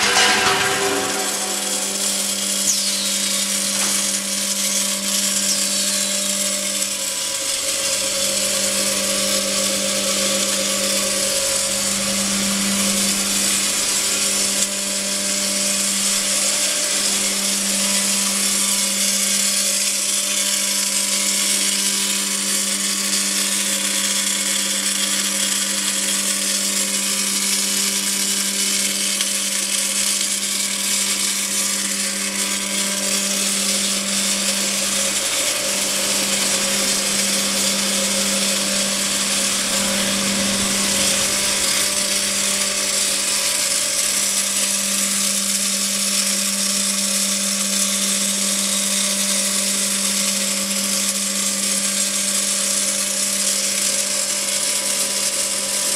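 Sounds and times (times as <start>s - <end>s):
low machine hum: 0.0s - 13.9s, 29.8s - 46.0s.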